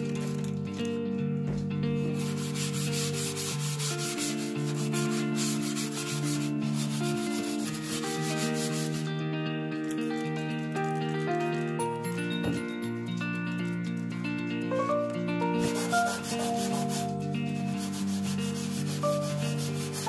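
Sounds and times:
background music: 0.0 - 20.0
steel wool scrubbing glass: 2.2 - 9.1, 15.6 - 20.0.

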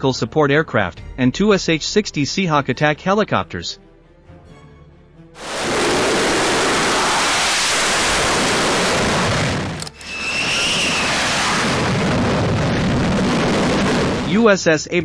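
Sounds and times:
faint whine: 5.4 - 14.3
jet engines roaring: 5.4 - 14.5.

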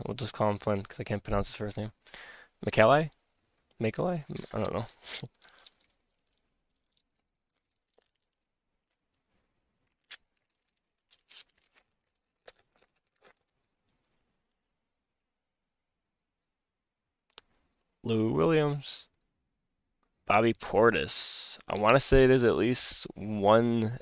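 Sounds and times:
trading cards being shuffled: 4.2 - 9.2, 9.8 - 14.1.

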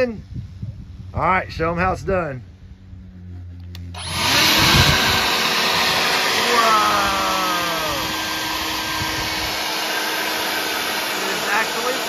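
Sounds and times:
leaf blower running: 3.7 - 12.0.

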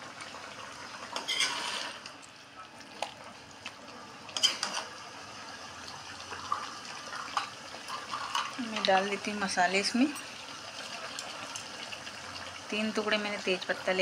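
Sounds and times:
metal spatula scraping a wok: 1.2 - 2.0, 4.4 - 4.9.

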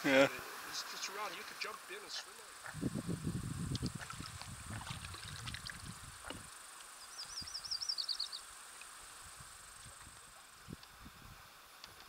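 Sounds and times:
water sloshing against canoe hull: 3.8 - 6.5.

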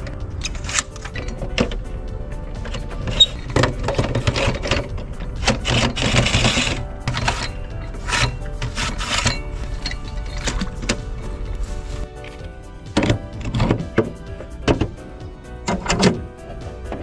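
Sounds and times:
metal platform clicking and rattling: 0.0 - 11.4, 12.2 - 15.0, 15.6 - 17.0
background music: 0.0 - 17.0
scraping noise: 2.5 - 12.5.

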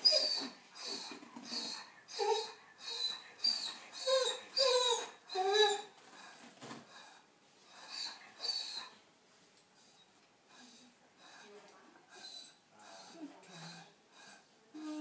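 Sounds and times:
dog whimpering: 0.0 - 6.4, 7.7 - 9.0, 12.1 - 15.0.

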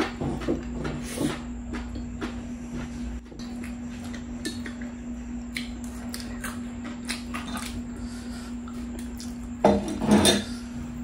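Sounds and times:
wet chewing and lip smacks: 5.5 - 7.8.

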